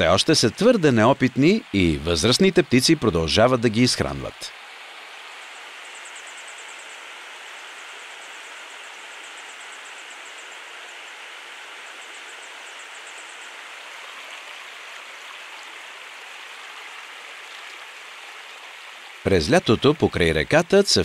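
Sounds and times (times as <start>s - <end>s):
river water rushing: 0.0s - 19.3s
fledgling high ticking calls: 5.4s - 13.8s.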